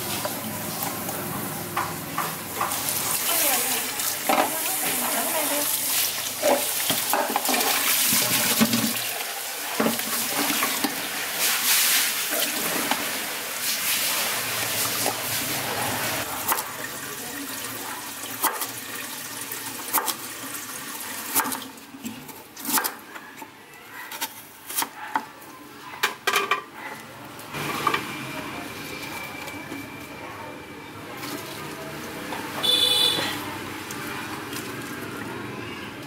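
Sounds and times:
water draining through colander: 2.6s - 22.4s
tap water splashing in sink: 5.8s - 9.1s, 9.7s - 11.0s.

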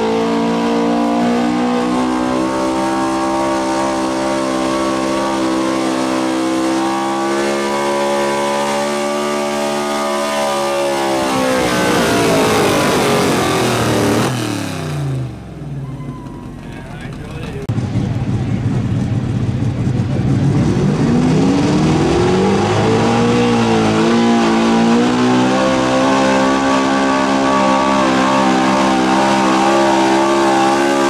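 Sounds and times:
truck engine under heavy load: 0.0s - 31.0s.

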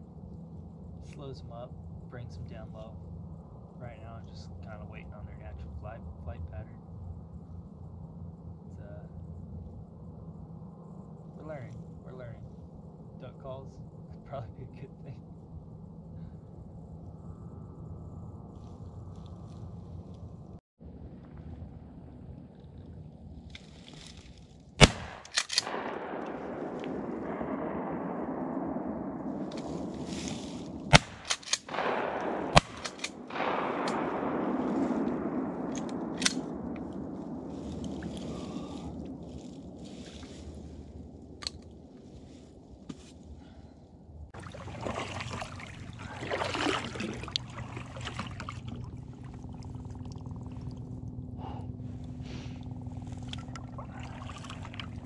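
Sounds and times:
echo rolling across lake: 0.0s - 55.0s
shotgun blasts: 24.8s - 39.0s.

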